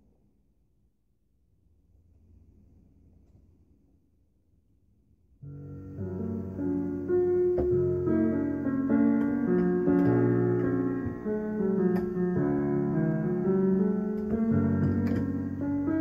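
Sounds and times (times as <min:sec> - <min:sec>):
piano music: 0:05.4 - 0:16.0.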